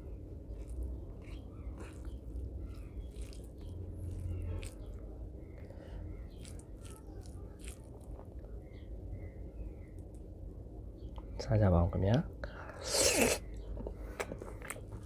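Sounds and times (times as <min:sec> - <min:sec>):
fingers squelching wet rice: 0:00.0 - 0:08.7
steady low hum: 0:00.0 - 0:15.0.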